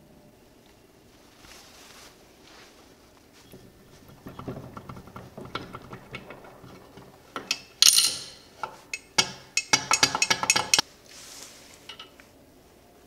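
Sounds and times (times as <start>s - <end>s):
metallic clatter: 3.4s - 10.8s.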